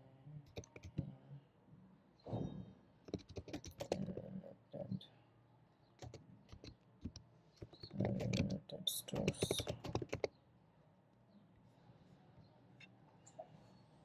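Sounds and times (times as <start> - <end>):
computer keyboard typing: 0.5 - 1.1, 3.1 - 4.2, 6.0 - 10.3.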